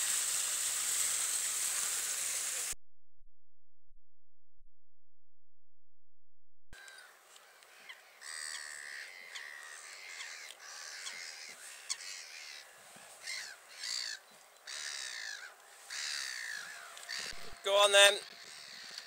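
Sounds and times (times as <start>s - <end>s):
gulls calling: 6.8s - 19.0s.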